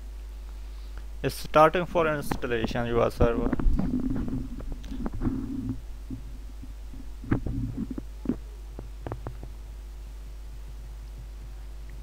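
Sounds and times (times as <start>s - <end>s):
low electrical hum: 0.0s - 12.0s
faint murmurs: 3.4s - 9.4s.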